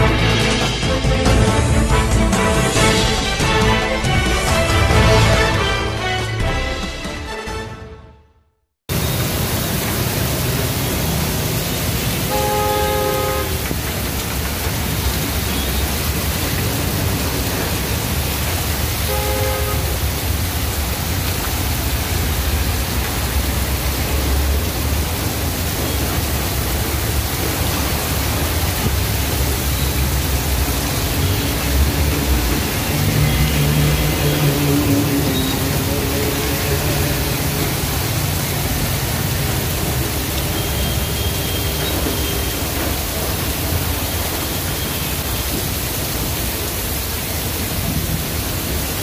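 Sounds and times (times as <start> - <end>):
heavy rain pouring: 0.0 - 6.7, 8.9 - 49.0
traffic driving through water: 8.9 - 49.0
vehicle horn: 12.0 - 13.8, 19.0 - 20.2, 32.9 - 37.7, 40.4 - 42.8.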